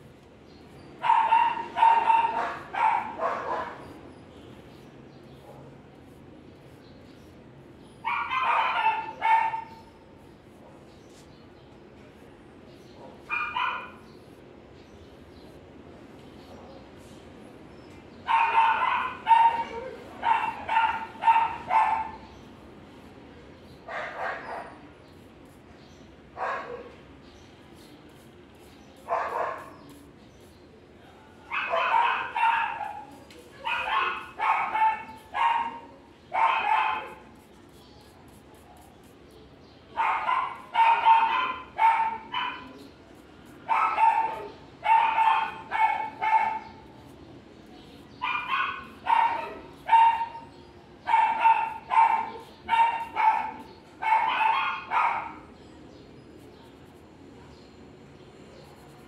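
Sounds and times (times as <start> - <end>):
dog barking: 1.0 - 4.0, 8.0 - 9.8, 12.9 - 14.0, 18.2 - 22.3, 23.8 - 24.8, 26.4 - 27.0, 29.0 - 30.0, 31.4 - 37.5, 39.9 - 42.8, 43.6 - 47.0, 48.2 - 55.5.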